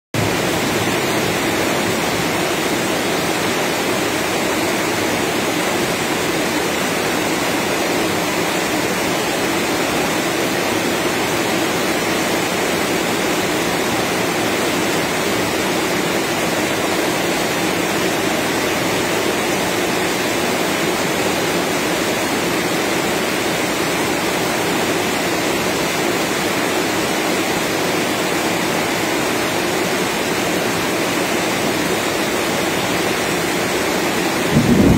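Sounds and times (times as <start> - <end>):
steady rain: 0.2 - 34.9.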